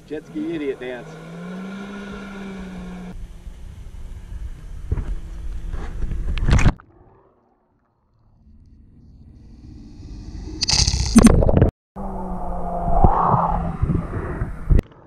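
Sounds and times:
wind rush on microphone: 12.5s - 14.9s.

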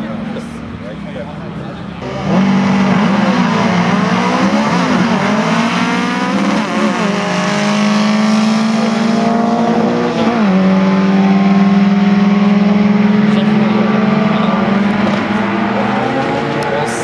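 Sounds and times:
drag car engines revving: 0.0s - 17.0s.

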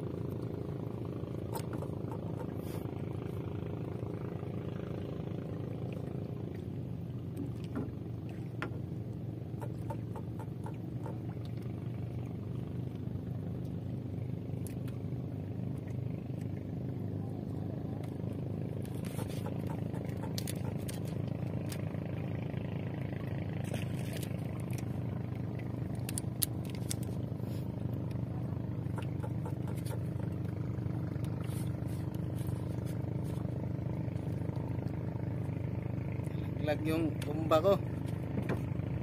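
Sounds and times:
engine hum: 0.0s - 39.0s
fishing tackle clicking: 26.0s - 27.1s.

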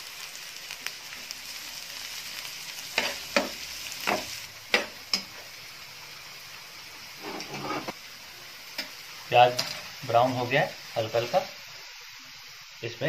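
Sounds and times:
onions sizzling in oil: 0.0s - 13.0s
metal spatula scraping a pan: 7.2s - 8.0s, 8.8s - 9.9s.

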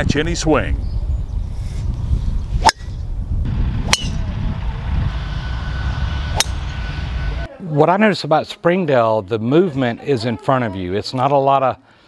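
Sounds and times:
low rumble: 1.9s - 7.5s
golf club striking ball: 2.6s - 3.0s, 3.8s - 4.3s, 6.3s - 6.8s.

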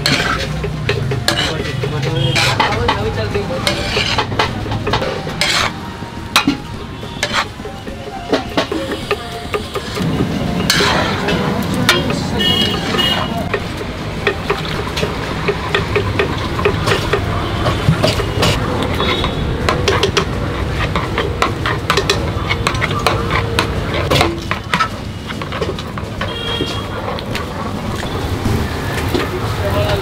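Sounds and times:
food sizzling: 0.0s - 26.2s
metal masher scraping griddle pan: 0.0s - 27.7s.

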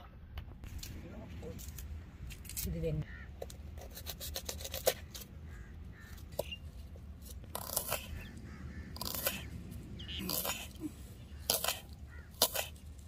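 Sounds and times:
knife cutting vegetables: 3.8s - 5.2s, 7.3s - 8.2s, 11.4s - 12.8s
knife scraping: 3.8s - 5.3s, 7.2s - 8.3s, 9.0s - 9.5s, 10.2s - 10.8s, 11.4s - 12.9s.

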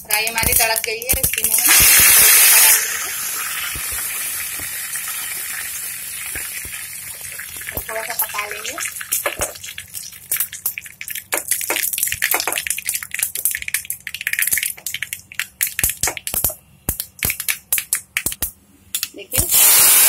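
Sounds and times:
seeds crackling in hot oil: 0.0s - 20.0s
hot oil sizzling hiss: 0.5s - 11.3s, 19.4s - 20.0s.

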